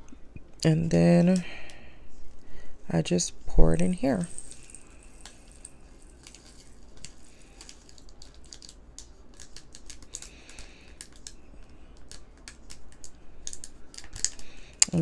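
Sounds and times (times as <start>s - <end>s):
rhinestones clicking into bottle: 4.2s - 11.4s, 12.0s - 15.0s.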